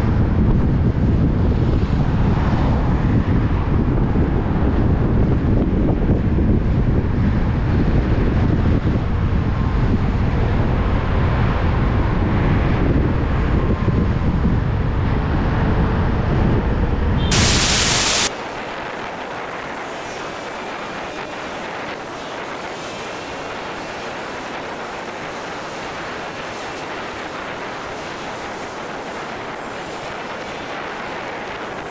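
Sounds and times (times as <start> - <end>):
traffic and road noise: 0.0 - 31.9
wind buffeting microphone: 0.0 - 31.9
loud hiss: 17.3 - 29.3.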